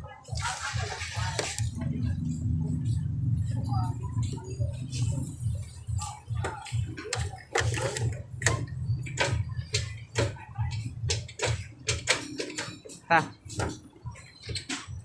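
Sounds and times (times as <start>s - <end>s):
scooter engine running: 0.5s - 12.2s.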